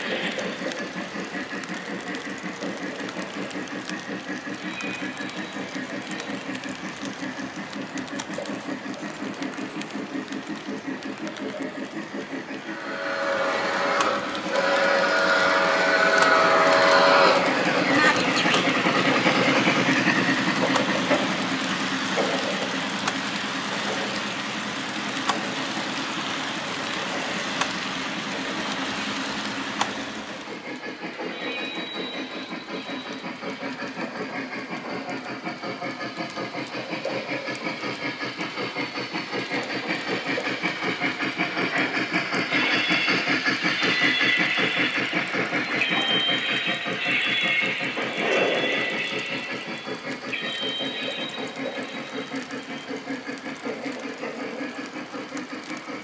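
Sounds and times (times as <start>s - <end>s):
sharp clicks: 0.0s - 12.7s, 13.6s - 56.0s
model steam train chuffing: 0.0s - 56.0s
model train whistle: 12.8s - 18.2s.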